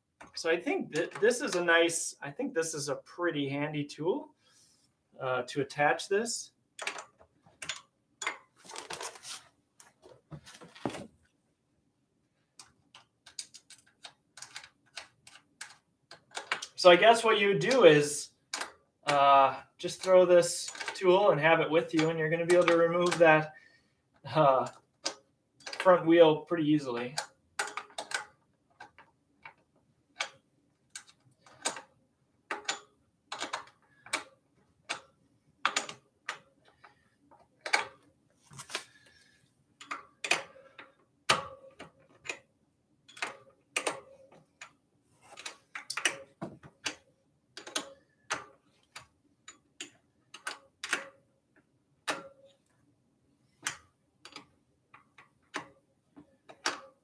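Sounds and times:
metal clicks and taps: 22.0s - 23.3s, 24.6s - 25.9s, 27.0s - 29.6s, 31.0s - 31.9s, 32.5s - 37.0s, 39.8s - 42.5s, 43.1s - 51.2s, 53.6s - 57.0s.

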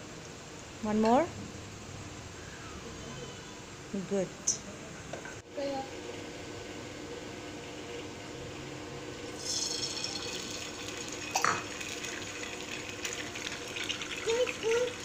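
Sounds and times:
egg sizzling on griddle: 9.3s - 15.0s.

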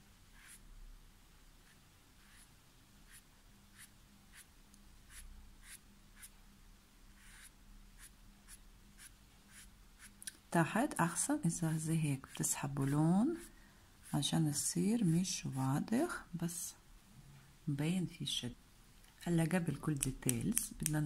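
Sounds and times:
brush swishing on paper: 0.3s - 0.6s, 1.6s - 4.5s, 5.1s - 6.4s, 7.2s - 10.2s, 12.2s - 14.3s.

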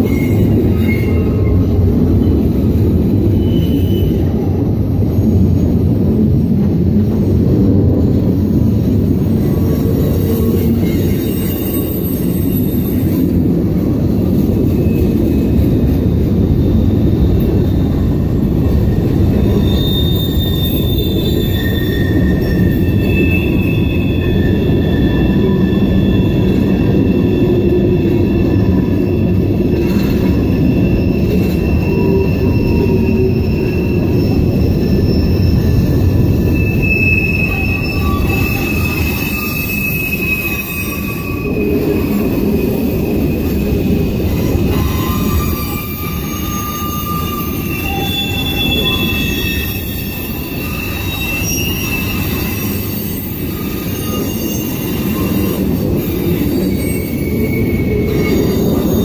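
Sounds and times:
freight train wheels rumbling on rail: 0.0s - 59.0s
high-pitched wheel squeals: 3.2s - 4.3s, 18.9s - 59.0s.

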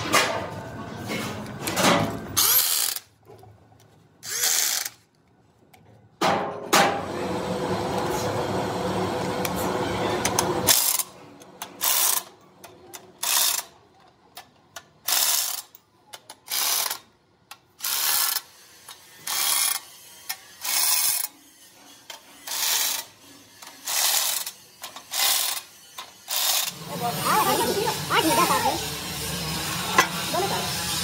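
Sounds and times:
electric impact wrench bursts: 2.4s - 3.1s, 4.2s - 5.0s, 19.2s - 21.3s, 23.7s - 31.0s.

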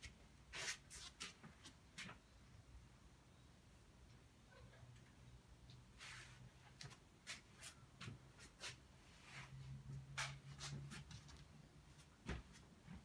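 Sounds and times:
faint scratching strokes: 5.9s - 6.6s.

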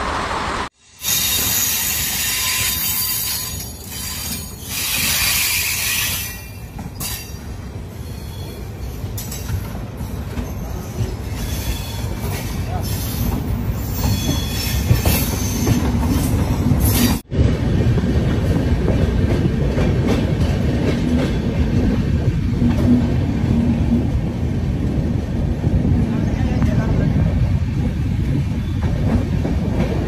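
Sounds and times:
train wheels rumbling on rails: 0.0s - 30.0s
high wheel squeal: 1.0s - 8.7s, 10.4s - 17.2s.

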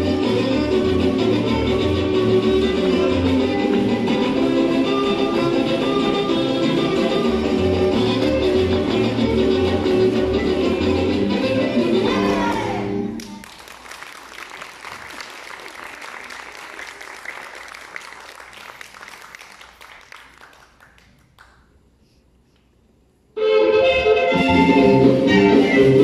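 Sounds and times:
music: 0.0s - 13.5s, 23.4s - 26.0s
audience applause: 13.2s - 21.6s.

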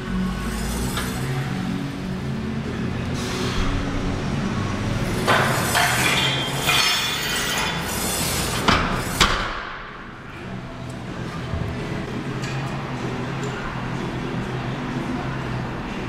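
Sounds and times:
steady low hum: 0.0s - 16.0s
weight plates clanking: 5.1s - 9.4s.

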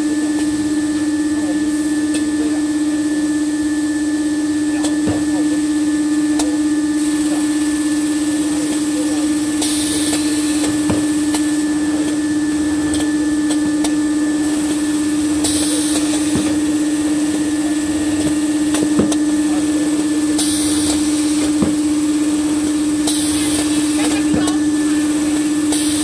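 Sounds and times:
cutting machine humming: 7.0s - 26.0s
machine hiss: 7.0s - 26.0s.

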